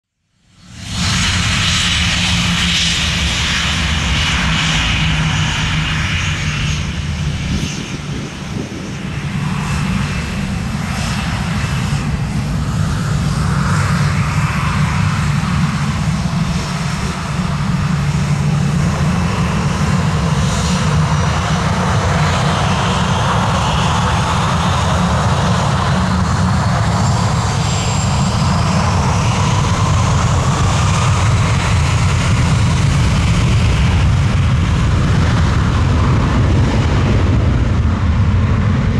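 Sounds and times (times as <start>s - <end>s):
jet engine rumble: 0.3s - 38.9s
turbine whine: 0.3s - 38.9s.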